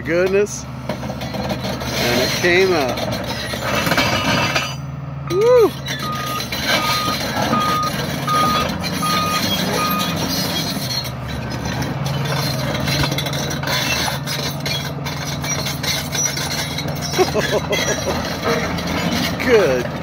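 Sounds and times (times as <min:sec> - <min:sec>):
diesel engine running under load: 0:00.0 - 0:20.0
backup alarm beeping: 0:06.0 - 0:10.1.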